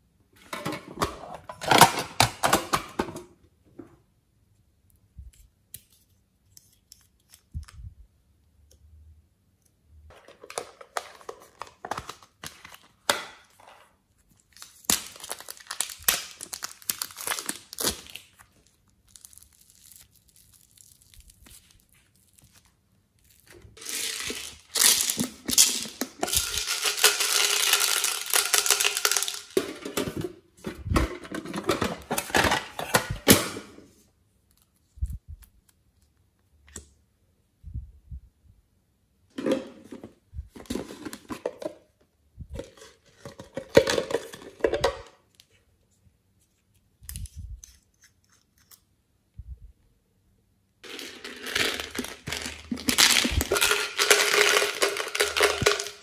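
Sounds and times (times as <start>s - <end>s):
modelling clay stretched and squeezed: 14.1s - 23.6s.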